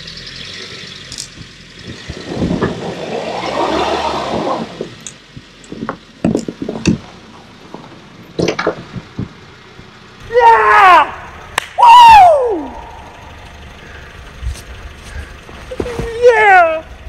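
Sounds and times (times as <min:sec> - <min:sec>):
tyres churning snow: 0:00.0 - 0:08.3, 0:09.0 - 0:17.0
crunches and knocks: 0:04.8 - 0:07.1.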